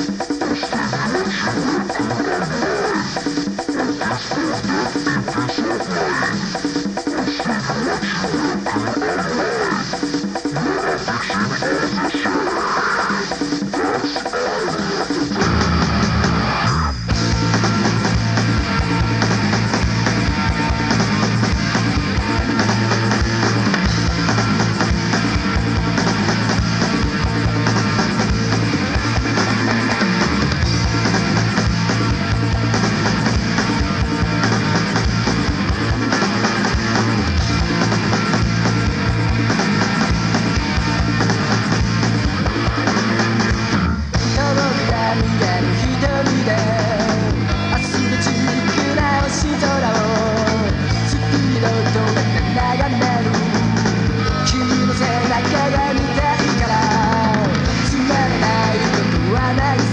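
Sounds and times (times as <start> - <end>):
bass guitar: 0.0 - 59.9
drum kit: 0.0 - 59.9
electric guitar: 0.0 - 59.9.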